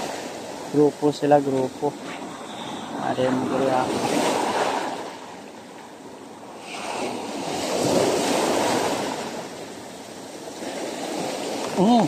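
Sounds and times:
sea waves breaking over rocks: 0.0 - 12.0.

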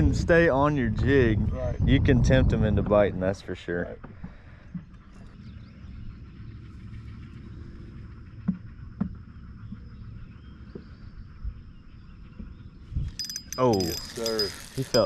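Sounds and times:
low rumble: 4.9 - 13.1.

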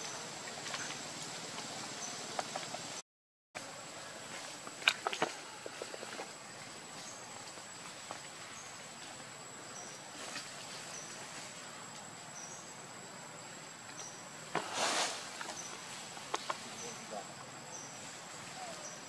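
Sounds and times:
brief rustle: 13.9 - 16.9.

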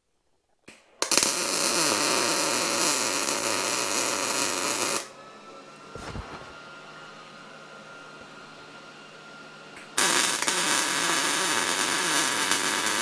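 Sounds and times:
arc welder sputtering and welding: 0.7 - 5.1, 9.8 - 13.0.

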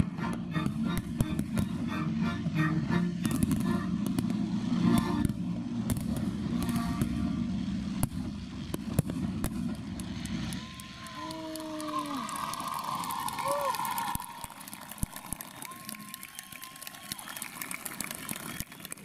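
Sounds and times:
sharp bangs and crackles: 0.0 - 11.6
continuous low rumble: 0.0 - 19.0.

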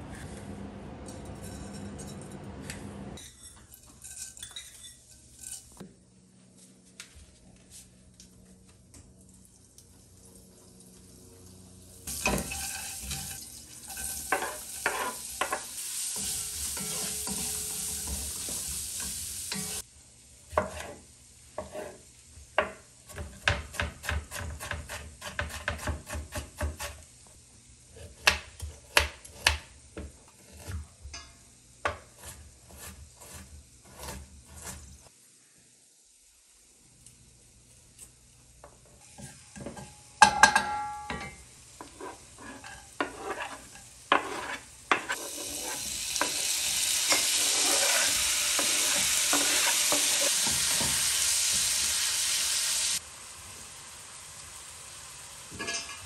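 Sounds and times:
cabbage sizzling in hot oil: 10.8 - 19.9, 41.5 - 56.0
wooden spatula stirring: 41.8 - 45.9, 47.1 - 50.8.

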